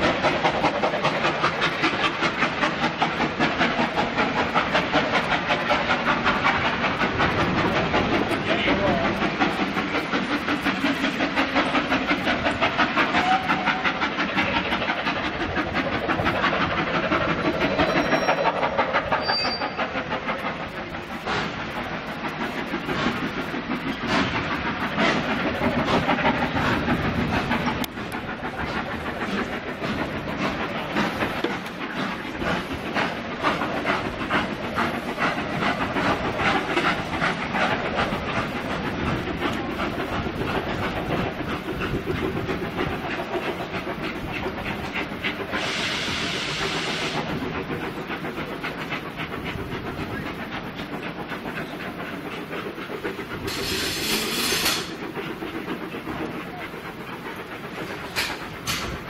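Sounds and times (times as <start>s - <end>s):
steam hiss: 0.0s - 59.0s
steam locomotive exhaust beats: 0.0s - 59.0s.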